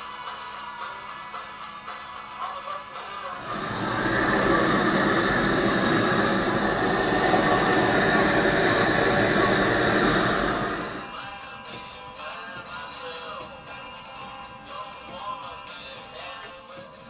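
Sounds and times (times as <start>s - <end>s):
blowtorch flame rushing: 3.4s - 11.2s.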